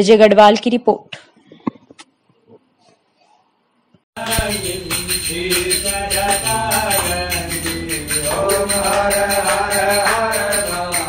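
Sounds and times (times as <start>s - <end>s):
jingling percussion beat: 4.2s - 11.0s
person singing devotional song: 4.2s - 11.0s.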